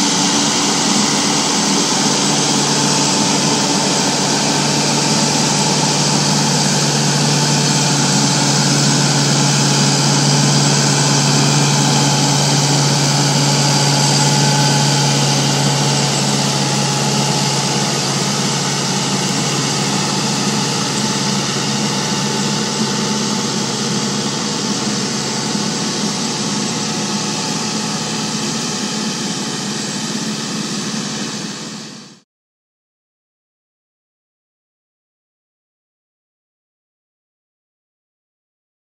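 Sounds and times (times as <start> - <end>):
diesel engine running under load: 0.0 - 32.2.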